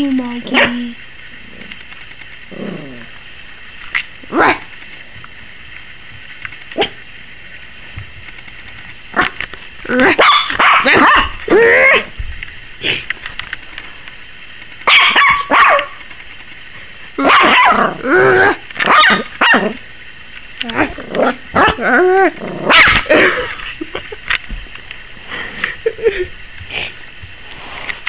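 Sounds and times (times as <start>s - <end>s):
puppy barking and yipping: 10.0s - 11.4s, 14.9s - 16.0s, 17.2s - 17.8s, 18.9s - 19.7s, 22.7s - 23.1s.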